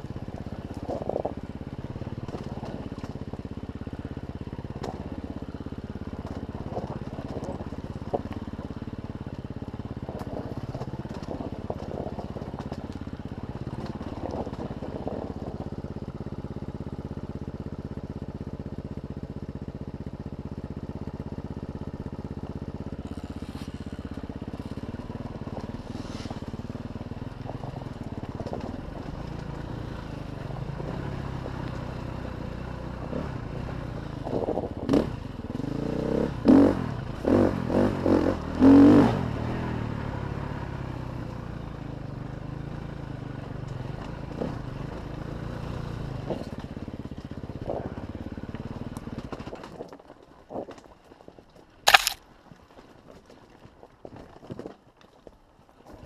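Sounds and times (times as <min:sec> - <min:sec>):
dirt bike engine running: 0:00.0 - 0:39.7, 0:51.9 - 0:52.2
bike rattling over rocks: 0:51.9 - 0:52.2.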